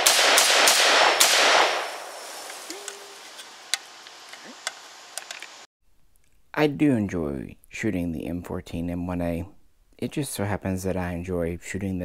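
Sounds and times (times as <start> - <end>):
rifle shots echoing: 0.0 - 2.4.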